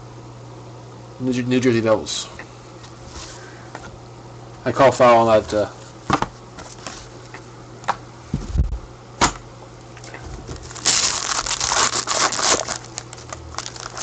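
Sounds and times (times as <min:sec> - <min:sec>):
plastic crinkling and rustling: 0:10.5 - 0:14.0.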